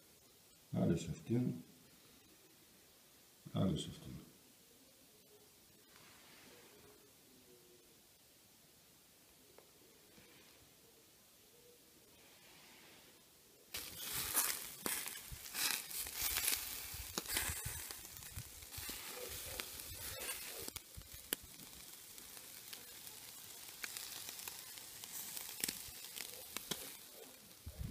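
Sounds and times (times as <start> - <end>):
fish sizzling on grill: 13.7 - 27.9.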